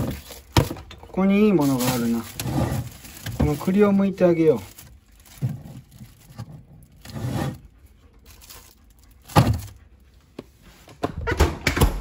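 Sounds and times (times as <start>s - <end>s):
cling film rustling: 0.0s - 7.1s.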